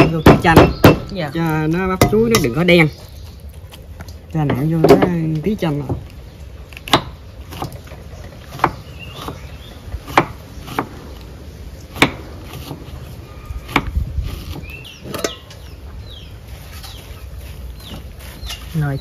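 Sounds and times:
knife chopping on wooden board: 0.0 - 1.2, 10.0 - 11.0.

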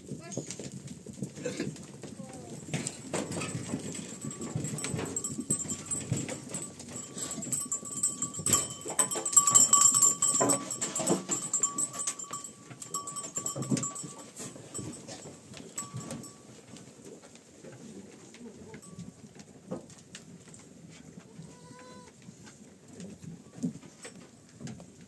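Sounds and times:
hooves scuffing: 0.4 - 21.4
fodder rustling: 2.2 - 16.7.

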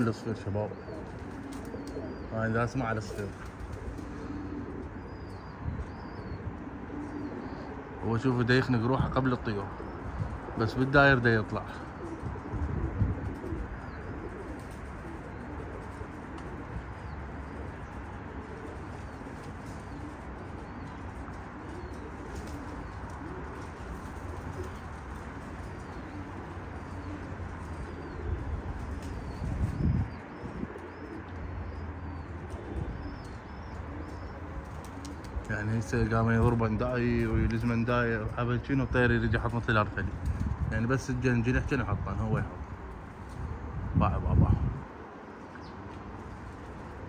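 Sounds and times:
pigeons cooing: 0.0 - 47.0
small birds chirping: 0.0 - 47.0
wings flapping: 0.8 - 6.1, 9.8 - 31.2, 32.4 - 37.7.

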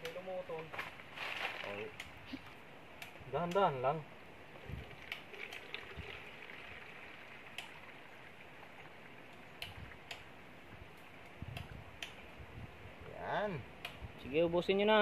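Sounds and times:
liquid trickling: 4.6 - 10.4
soft ticks: 9.3 - 10.3.

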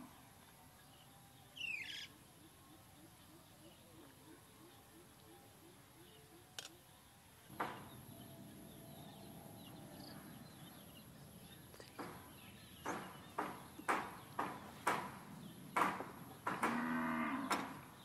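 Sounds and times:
faint outdoor background: 0.0 - 18.0
sharp short knocks: 12.0 - 15.2, 15.8 - 16.8.

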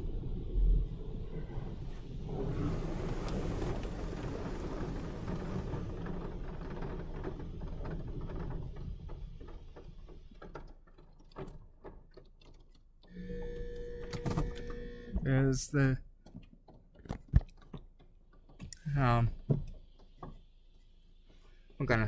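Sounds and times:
muffled water spray on car: 0.0 - 6.0
water ticks: 10.4 - 13.1.

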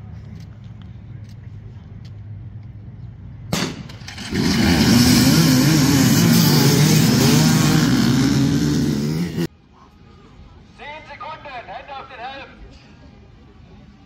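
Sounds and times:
dirt bike engine revving: 4.0 - 9.5
rushing noise: 4.1 - 9.5.

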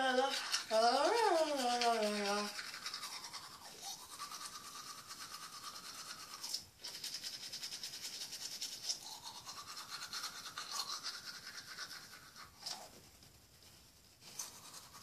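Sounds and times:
toothbrush scrubbing teeth: 0.0 - 13.0, 13.8 - 15.0.

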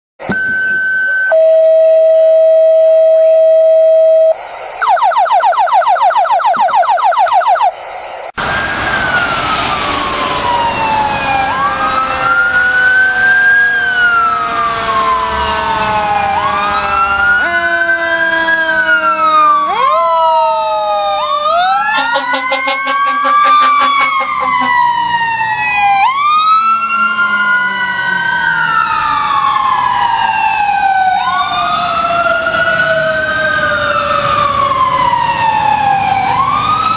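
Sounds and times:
electronic siren tone: 0.2 - 36.9
electronic siren yelp: 0.2 - 36.9
mechanical siren wailing: 0.2 - 36.9
road and wind noise: 0.2 - 36.9.

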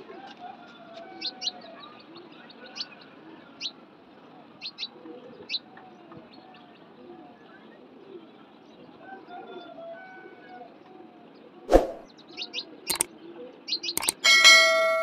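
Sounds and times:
small birds chirping: 0.3 - 8.9, 11.8 - 14.3
pigeons cooing: 4.8 - 5.9, 6.8 - 11.7.

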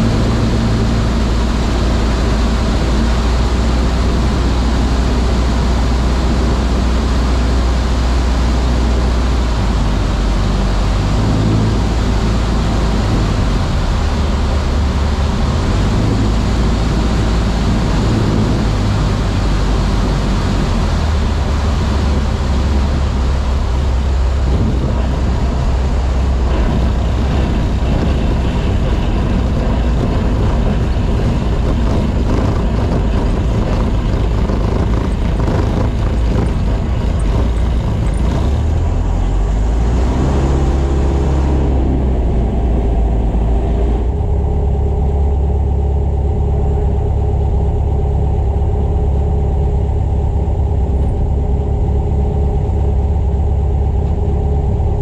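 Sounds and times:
light airplane engine idling: 0.0 - 55.0
wind hiss and rolling noise: 0.0 - 55.0.

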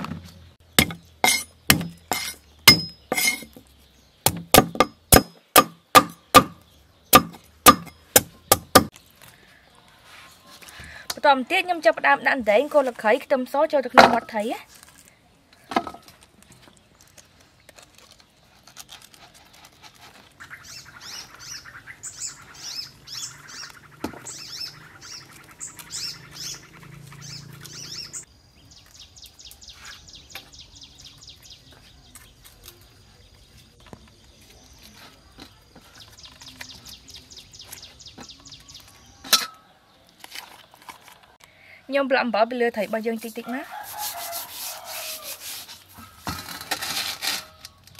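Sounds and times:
small birds chirping: 0.2 - 46.3
hands working in a bowl: 42.9 - 46.2.

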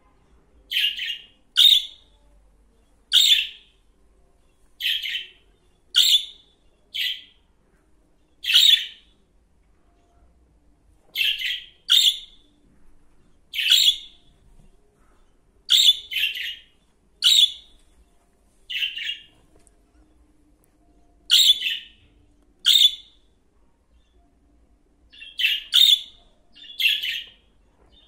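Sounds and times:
budgerigar chirps: 0.7 - 2.0, 3.1 - 3.6, 6.0 - 6.4, 8.4 - 9.0, 11.2 - 12.4, 13.6 - 14.2, 15.7 - 16.6, 17.2 - 17.7, 21.3 - 22.0, 22.6 - 23.1, 25.2 - 27.3.

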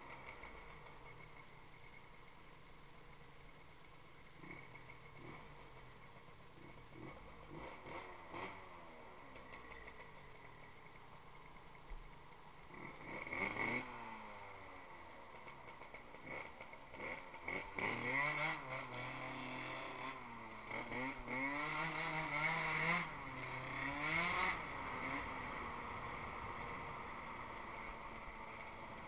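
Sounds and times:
two-stroke scooter engine revving: 4.3 - 5.9, 6.6 - 11.0, 12.7 - 29.0.

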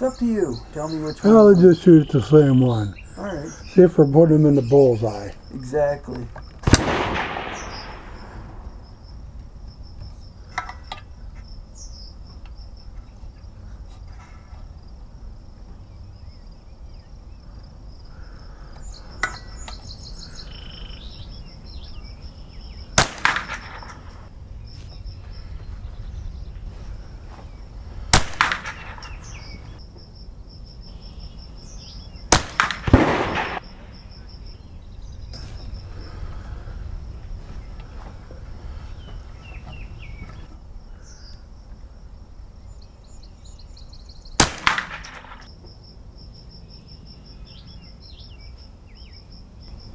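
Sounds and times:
insect chirring: 0.0 - 49.9
rifle shots: 6.6 - 8.7, 23.0 - 24.2, 28.1 - 29.6, 32.3 - 34.0, 44.4 - 45.5.

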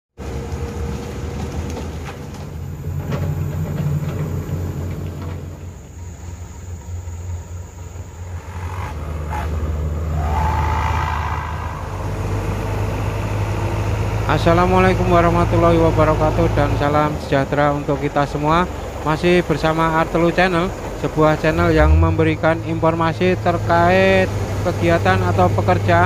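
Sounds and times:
diesel engine running: 0.2 - 26.0.

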